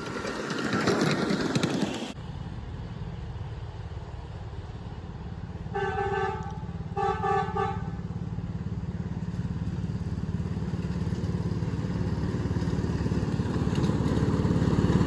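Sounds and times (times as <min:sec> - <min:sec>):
locomotive horn blasts: 0:05.7 - 0:08.0
small engine pulsing: 0:06.5 - 0:15.0.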